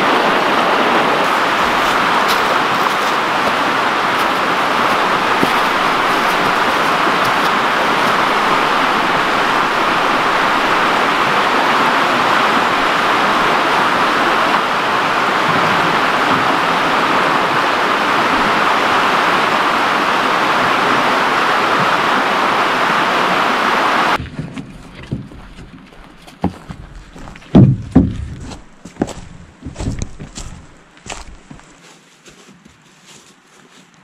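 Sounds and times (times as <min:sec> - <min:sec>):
fast-flowing water rushing: 0:00.0 - 0:24.2.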